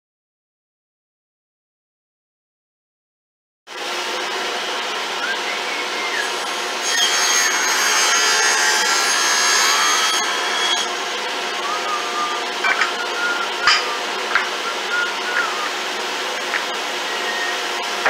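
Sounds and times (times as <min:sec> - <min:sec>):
table saw cutting wood: 0:03.7 - 0:18.0.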